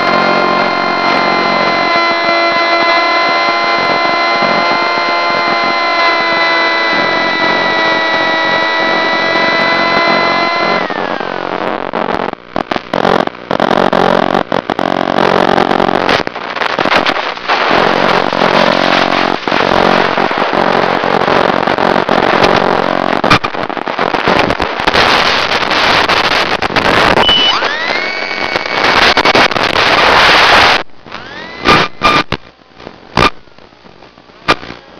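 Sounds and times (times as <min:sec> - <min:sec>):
model airplane motor and propeller: 0:00.0 - 0:12.2, 0:17.7 - 0:23.2, 0:27.3 - 0:28.8, 0:31.1 - 0:32.0
radio hiss and crackle: 0:00.0 - 0:34.9.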